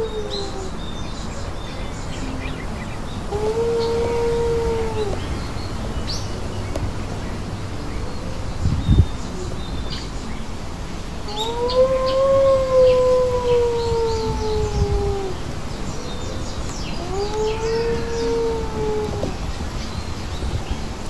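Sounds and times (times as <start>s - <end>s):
dingo howling: 0.0s - 1.3s, 3.2s - 5.4s, 11.2s - 15.5s, 16.9s - 19.8s
small birds chirping: 0.0s - 21.0s.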